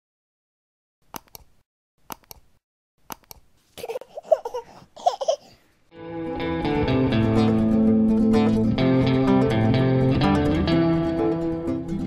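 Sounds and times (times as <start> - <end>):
mouse click sound effects: 1.2 - 1.5, 2.1 - 2.4
high childlike voice babbling: 3.8 - 5.5.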